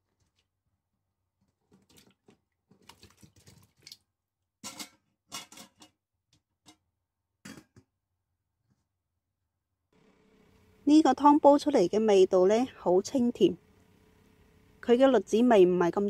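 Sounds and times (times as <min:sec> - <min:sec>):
vegetables splashing into pot of water: 0:01.8 - 0:04.1.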